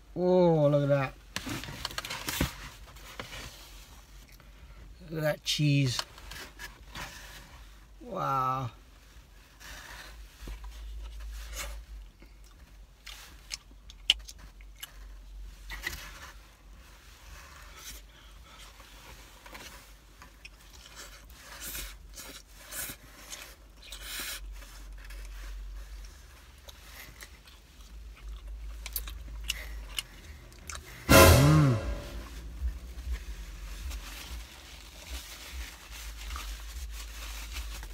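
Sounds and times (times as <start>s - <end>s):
low steady hum: 0.0s - 37.9s
person chewing pizza: 12.2s - 15.3s, 26.0s - 31.0s.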